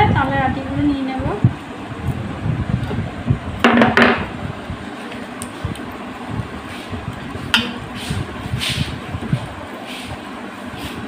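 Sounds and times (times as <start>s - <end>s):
hands rubbing wet fibres: 9.8s - 11.0s.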